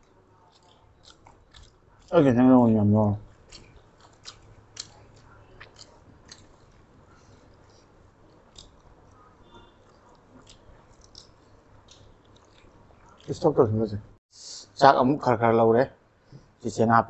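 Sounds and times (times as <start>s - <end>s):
people chewing: 0.0s - 13.6s.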